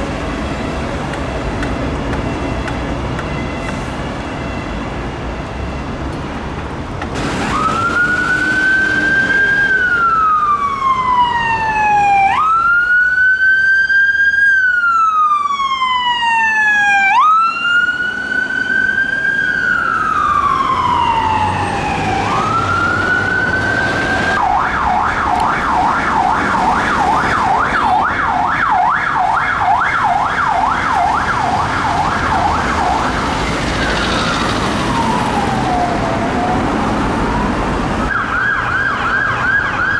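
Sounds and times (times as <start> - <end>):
road traffic noise: 0.0 - 39.9
emergency vehicle siren wailing: 7.0 - 39.9.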